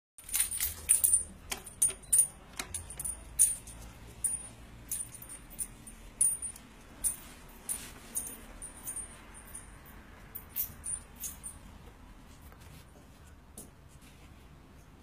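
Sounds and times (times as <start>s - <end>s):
small metal objects clinking: 0.2s - 11.6s.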